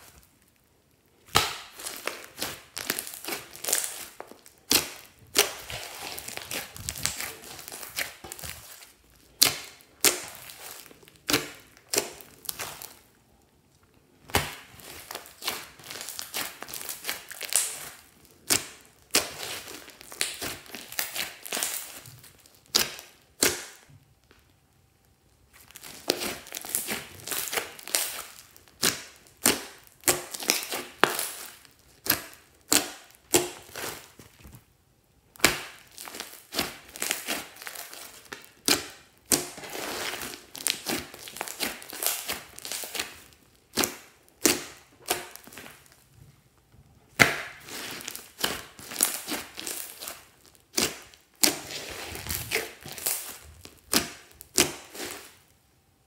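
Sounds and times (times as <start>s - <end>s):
slime squelching pops and crackles: 14.2s - 24.6s.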